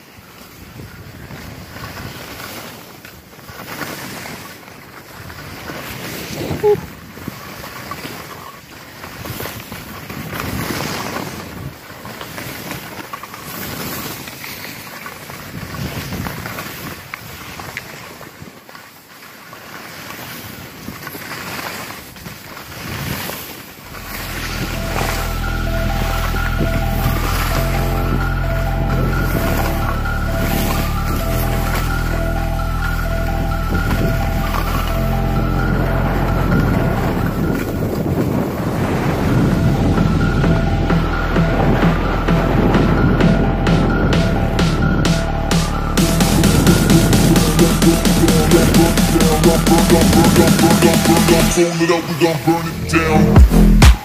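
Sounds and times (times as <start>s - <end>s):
skis hissing through snow: 0.0s - 27.9s
wind rushing over microphone: 23.8s - 45.1s
music: 23.9s - 38.1s, 38.8s - 54.0s.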